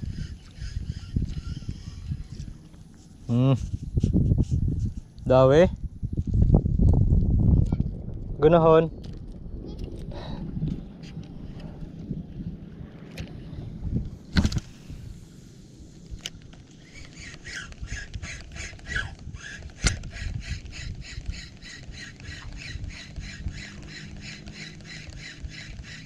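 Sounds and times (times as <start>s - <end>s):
fishing reel ticking: 16.2s - 26.0s.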